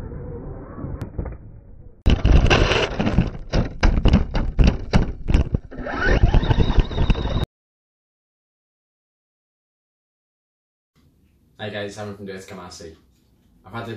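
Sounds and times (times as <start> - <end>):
knocks and thumps of car chassis: 3.0 - 5.6.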